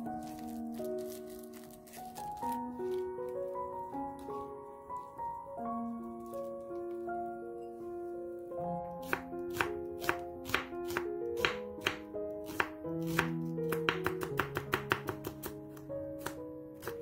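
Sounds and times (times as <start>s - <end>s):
background music: 0.0s - 17.0s
knife slicing onion on wooden board: 9.0s - 15.6s.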